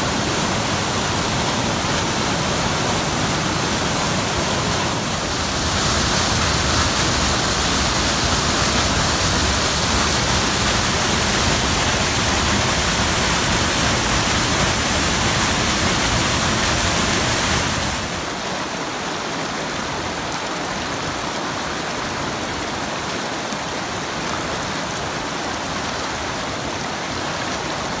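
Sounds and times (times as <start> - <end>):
water rushing over rocks: 0.0 - 28.0.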